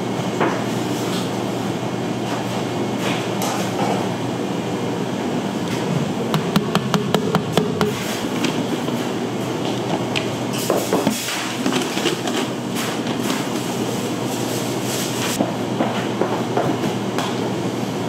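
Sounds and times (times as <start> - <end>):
machinery humming: 3.9 - 11.6.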